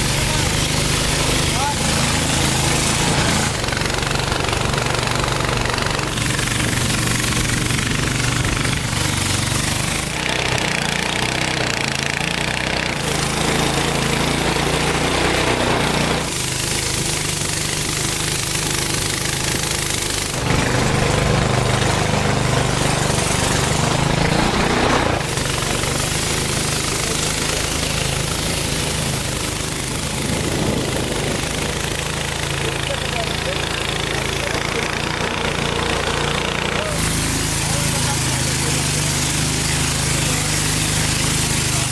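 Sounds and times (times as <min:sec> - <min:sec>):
outboard engine drone: 0:00.0 - 0:41.9
water rushing from wake: 0:00.0 - 0:41.9.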